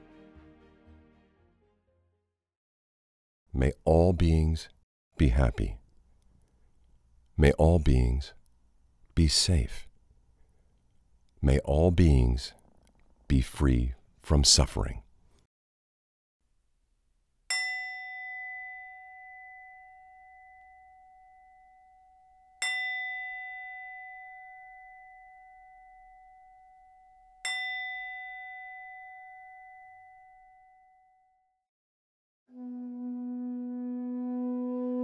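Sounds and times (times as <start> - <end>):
meditation bell ringing: 17.5 - 31.6.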